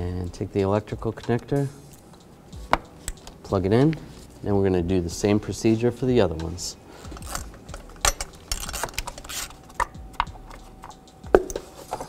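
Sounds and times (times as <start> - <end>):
hand tools clicking and knocking: 7.1 - 12.0.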